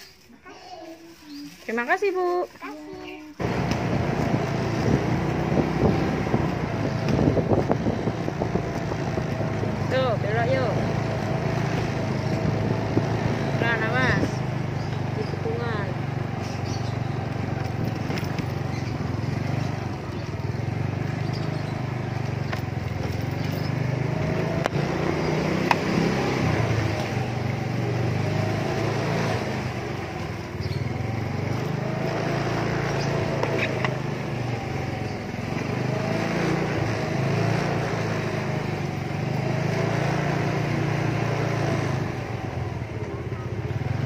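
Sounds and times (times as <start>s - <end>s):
small engine running: 2.6s - 44.0s.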